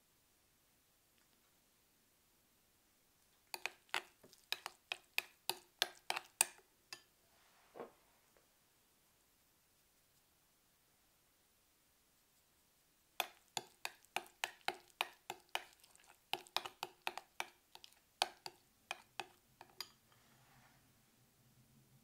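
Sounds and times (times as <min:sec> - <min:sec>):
metal spoon clinking on glass bowl: 0:03.5 - 0:07.1, 0:13.2 - 0:20.0
soft scraping: 0:07.2 - 0:08.4, 0:20.0 - 0:21.0.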